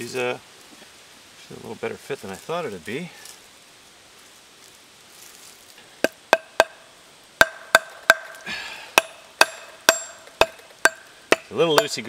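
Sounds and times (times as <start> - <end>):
axe head knocking with metallic ring: 6.0 - 6.8, 7.4 - 8.4, 9.0 - 12.0.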